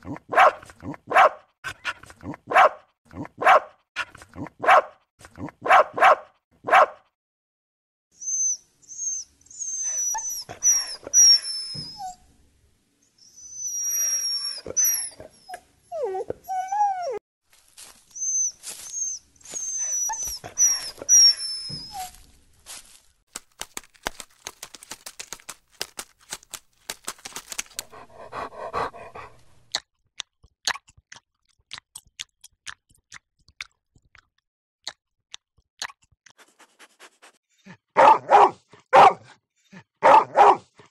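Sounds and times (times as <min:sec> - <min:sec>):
dog barking: 0:00.3 - 0:03.8, 0:04.6 - 0:05.0, 0:05.6 - 0:07.1, 0:38.0 - 0:39.4, 0:40.0 - 0:40.7
dog whining and whimpering: 0:08.2 - 0:12.3, 0:13.2 - 0:17.2, 0:18.1 - 0:22.2
dog yelping: 0:08.3 - 0:12.2, 0:13.3 - 0:17.2, 0:18.2 - 0:22.2, 0:38.0 - 0:39.3, 0:40.0 - 0:40.6.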